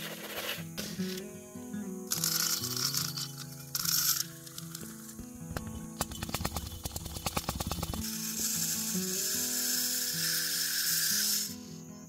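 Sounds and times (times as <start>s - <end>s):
seed rattling against glass jar: 2.1s - 5.2s.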